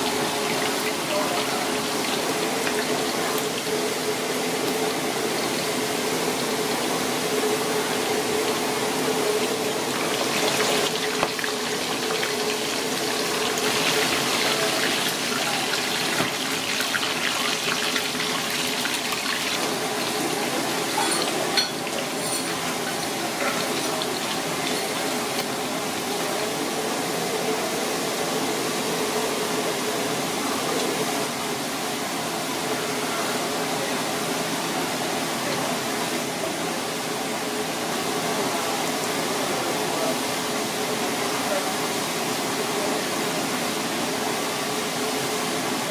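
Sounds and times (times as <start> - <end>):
oil sizzling in a wok: 0.0 - 26.9.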